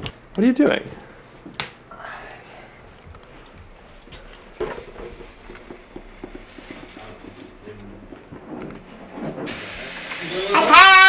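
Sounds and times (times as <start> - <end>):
steady hiss: 4.6 - 8.3, 9.2 - 11.0.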